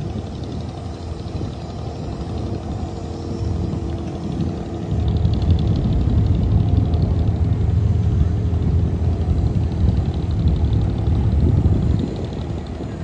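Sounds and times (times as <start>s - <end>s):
boat diesel engine rumbling: 0.0s - 13.0s.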